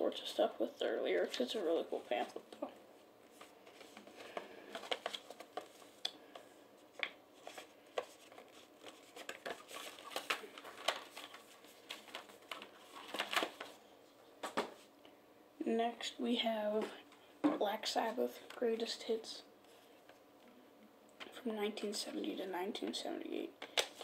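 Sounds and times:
paper booklet rustling and crinkling: 0:01.1 - 0:13.8.

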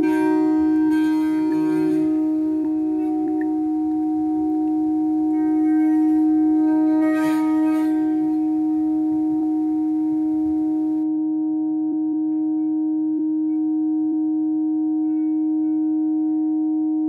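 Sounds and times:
faint hiss: 0:00.0 - 0:11.0
ambient drone music: 0:00.0 - 0:17.0.

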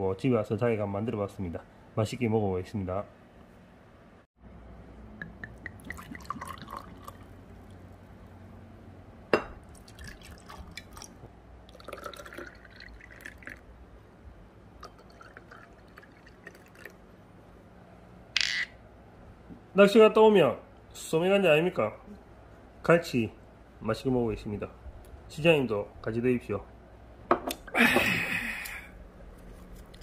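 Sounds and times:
liquid pouring into glasses: 0:05.2 - 0:07.7, 0:09.6 - 0:13.6, 0:14.8 - 0:17.0.

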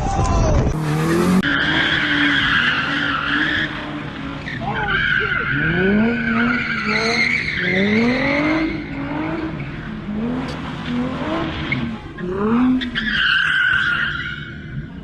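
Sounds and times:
car engine revving: 0:00.6 - 0:14.8
tyres squealing: 0:01.4 - 0:09.0.

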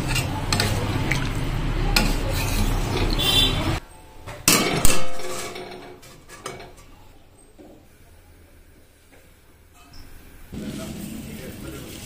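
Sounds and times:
metal cookware clanking: 0:00.0 - 0:07.0.

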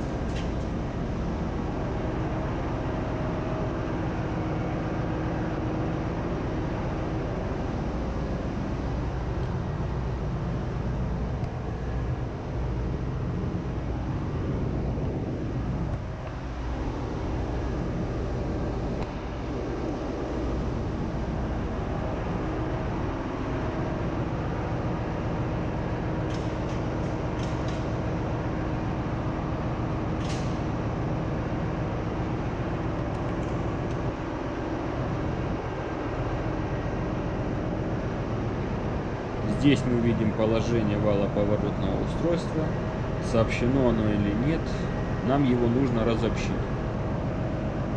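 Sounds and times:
engine room machinery drone: 0:00.0 - 0:47.9.

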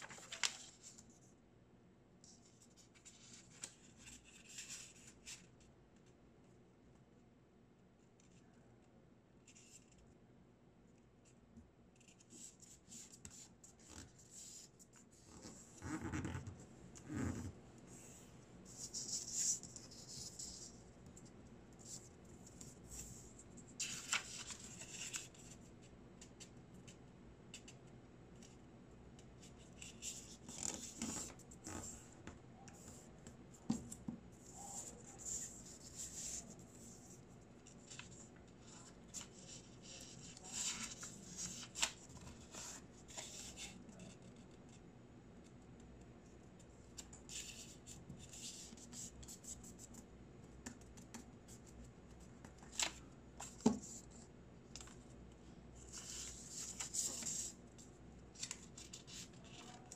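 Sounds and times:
paper crinkling: 0:00.0 - 0:01.1
paper rustling and sliding: 0:00.0 - 0:01.1, 0:23.8 - 0:25.4.

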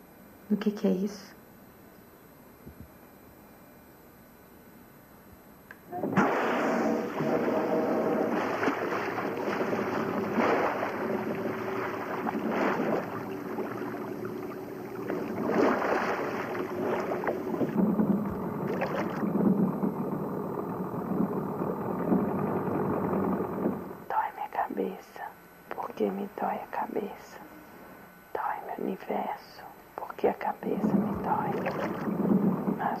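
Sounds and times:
boat engine running: 0:05.8 - 0:24.1, 0:30.7 - 0:33.0
water rushing bursts: 0:06.0 - 0:19.5, 0:30.9 - 0:32.9.

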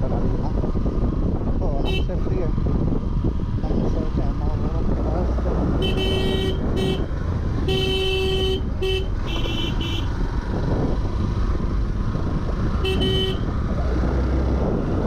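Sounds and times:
motorcycle engine rumble: 0:00.0 - 0:15.0
wind: 0:00.0 - 0:15.0
vehicle horn honking: 0:05.8 - 0:10.1, 0:12.8 - 0:13.5.

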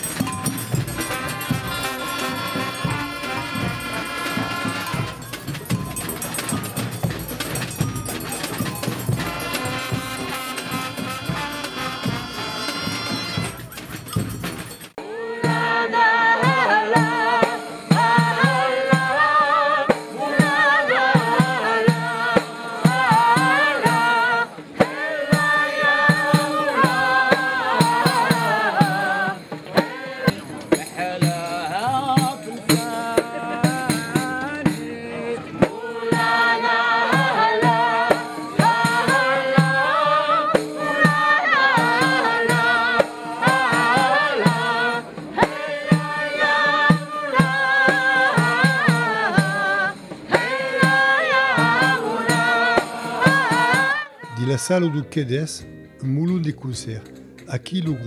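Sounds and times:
percussion beat: 0:00.0 - 0:55.4
group singing folk song: 0:15.0 - 0:55.2.

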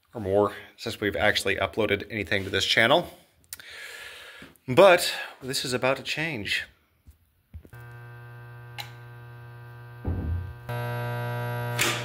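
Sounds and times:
electrical mains hum: 0:07.6 - 0:12.0
low thump: 0:10.0 - 0:10.5
sharp click: 0:11.8 - 0:12.0.

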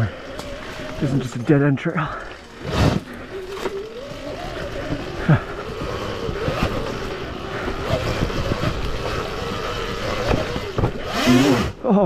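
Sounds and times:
electric dirt bike motor whine: 0:00.0 - 0:11.8.

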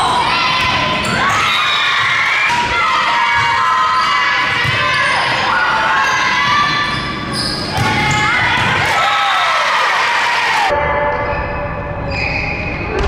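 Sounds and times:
people shouting: 0:00.0 - 0:06.9
shoe squeaks: 0:06.8 - 0:08.3, 0:12.0 - 0:13.0
volleyball hit and bouncing: 0:07.7 - 0:09.0.

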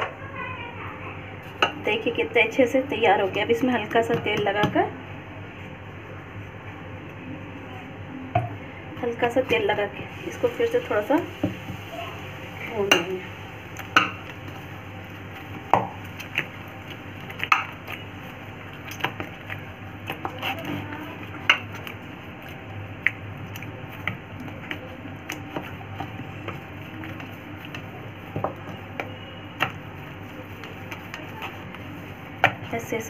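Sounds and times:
dough kneading on ceramic plate: 0:09.0 - 0:33.0.

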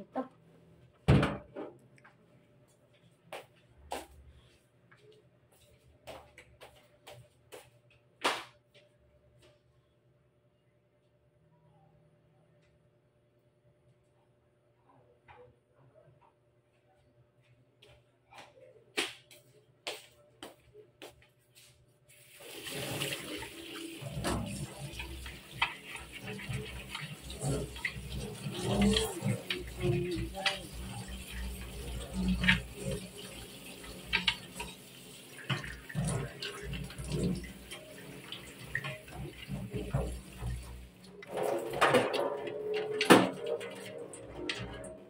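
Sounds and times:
tap water splashing into sink: 0:22.3 - 0:43.9.

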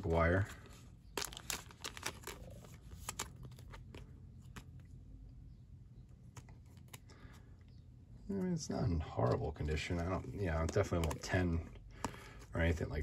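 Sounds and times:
plastic sleeve rustling: 0:00.1 - 0:04.9.

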